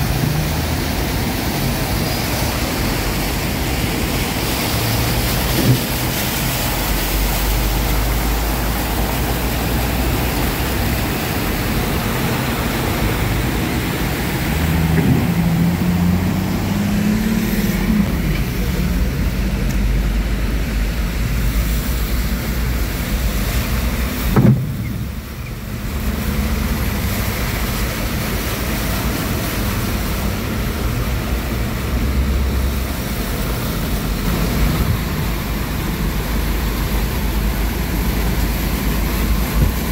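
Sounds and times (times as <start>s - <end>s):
car engines running: 0.0s - 39.9s
heavy rain and water wash: 0.0s - 39.9s
sharp knock: 24.4s - 25.0s.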